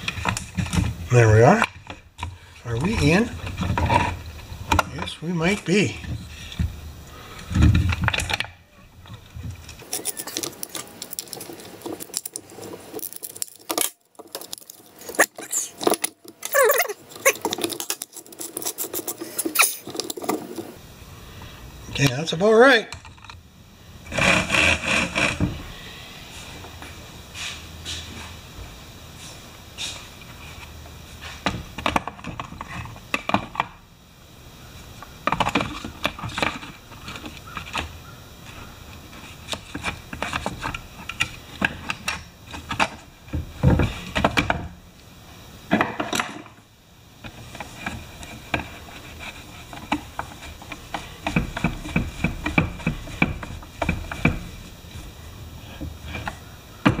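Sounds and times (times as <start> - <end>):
chainsaw chain links rattling: 9.8 - 20.7.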